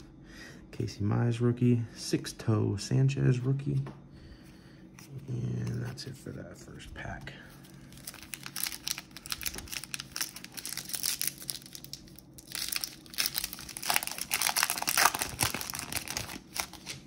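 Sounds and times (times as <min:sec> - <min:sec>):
wrapper torn and crinkled: 0:07.7 - 0:17.0.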